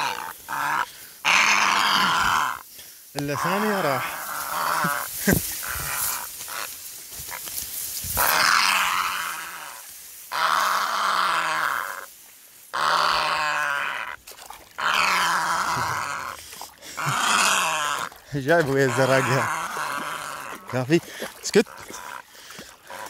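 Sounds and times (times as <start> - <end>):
bird giving harsh growling calls: 0.0 - 2.6, 8.2 - 12.1, 14.8 - 20.8.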